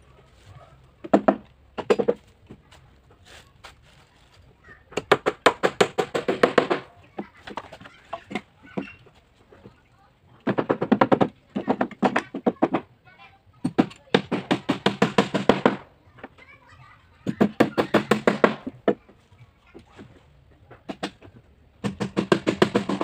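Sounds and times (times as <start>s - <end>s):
hammer driving nails into wood: 5.0s - 6.9s, 13.6s - 15.8s, 17.3s - 19.0s, 20.9s - 23.0s.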